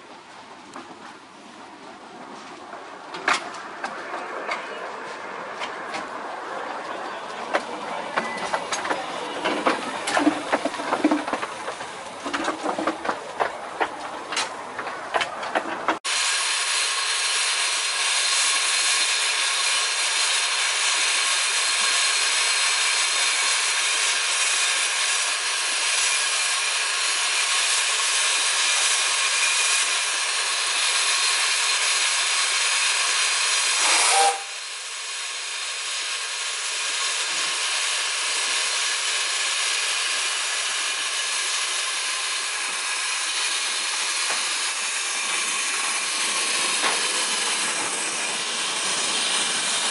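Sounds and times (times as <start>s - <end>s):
steam hissing from safety valve: 16.1s - 49.9s.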